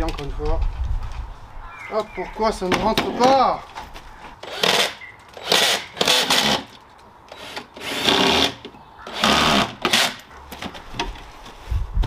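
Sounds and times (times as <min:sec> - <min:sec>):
power drill driving screws: 0:04.4 - 0:10.2.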